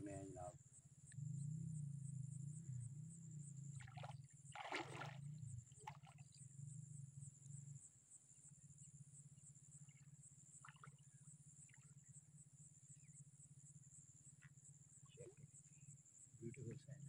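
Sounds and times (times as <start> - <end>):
insect chirping trill: 0.0 - 17.0
low steady hum: 1.1 - 7.9.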